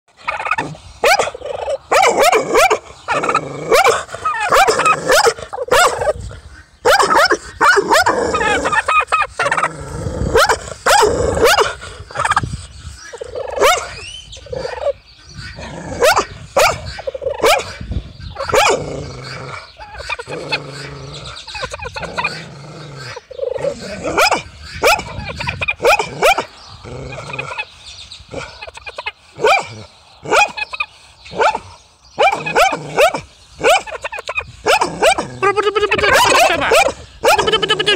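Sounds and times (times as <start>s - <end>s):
turkey gobbling: 0.2s - 6.2s, 6.9s - 9.7s, 10.5s - 12.4s, 13.0s - 14.1s, 14.7s - 17.7s, 18.3s - 22.4s, 23.1s - 26.4s, 27.2s - 27.7s, 28.6s - 29.6s, 30.3s - 30.9s, 32.2s - 37.9s
dog barking: 1.0s - 2.8s, 3.7s - 6.1s, 6.8s - 8.1s, 10.4s - 11.7s, 13.6s - 13.9s, 16.0s - 17.8s, 24.2s - 25.1s, 25.8s - 26.5s, 29.4s - 29.7s, 30.3s - 30.6s, 31.4s - 31.6s, 32.2s - 33.9s, 34.6s - 35.3s, 36.1s - 37.5s.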